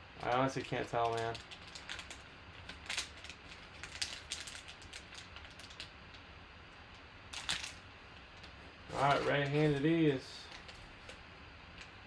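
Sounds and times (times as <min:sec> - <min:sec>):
foil packs crinkling: 0:00.2 - 0:05.9, 0:07.3 - 0:07.8, 0:08.4 - 0:11.2.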